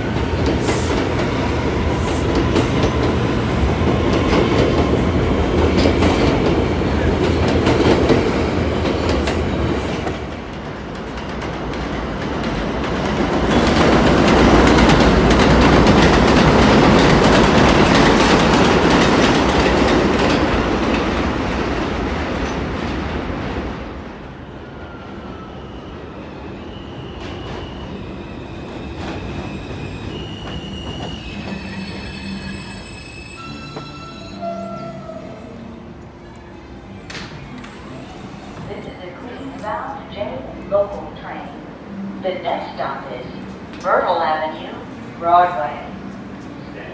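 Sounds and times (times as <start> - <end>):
subway train rumbling: 0.0 - 46.9
high-pitched wheel squeals: 29.5 - 35.5.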